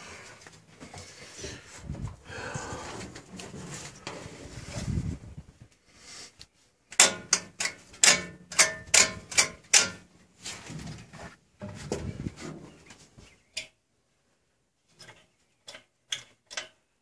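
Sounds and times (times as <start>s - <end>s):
sharp metal clanks: 7.0s - 10.1s.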